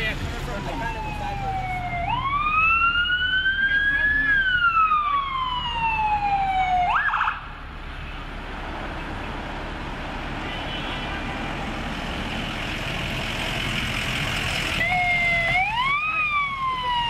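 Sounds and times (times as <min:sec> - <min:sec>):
vehicle engine and road noise: 0:00.0 - 0:17.0
ambulance siren wailing: 0:00.4 - 0:07.5, 0:14.8 - 0:17.0.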